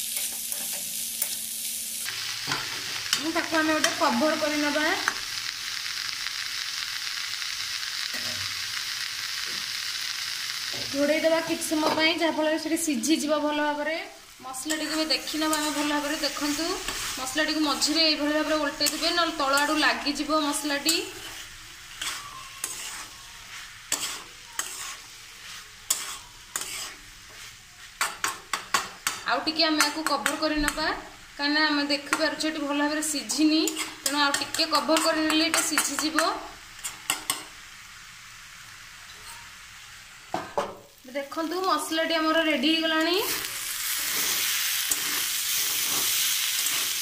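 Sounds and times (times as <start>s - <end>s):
vegetables sizzling in oil: 0.0s - 47.0s
metal spatula scraping pan: 20.7s - 29.2s, 33.4s - 37.5s.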